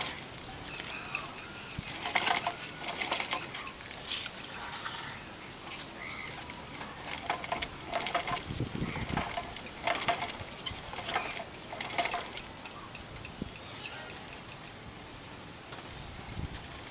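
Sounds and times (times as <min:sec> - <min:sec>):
hand sanding scratchy rubbing: 0:00.0 - 0:05.2.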